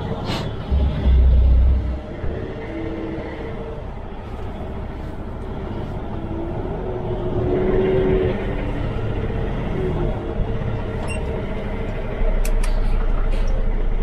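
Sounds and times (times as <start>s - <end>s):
truck diesel engine running: 0.0s - 7.4s.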